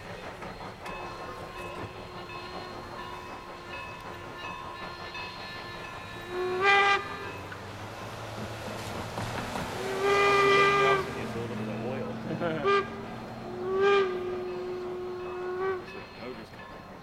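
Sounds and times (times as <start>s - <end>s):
train rumbling: 0.0s - 17.0s
steam whistle blast: 6.2s - 7.4s, 9.8s - 11.3s, 12.5s - 16.0s.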